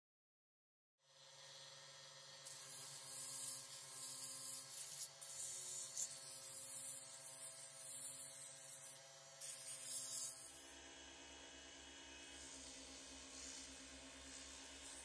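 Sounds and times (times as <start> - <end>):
sandpaper hissing on spinning wood: 2.4 - 10.8, 12.3 - 15.0.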